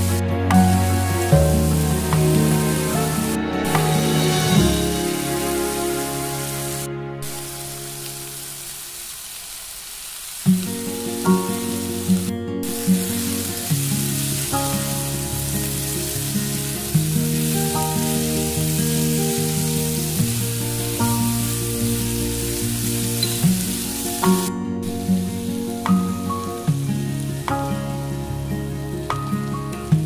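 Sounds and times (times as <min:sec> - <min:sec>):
background music: 0:00.0 - 0:08.7, 0:10.5 - 0:30.0
vegetables sizzling in frying pan: 0:00.0 - 0:27.5.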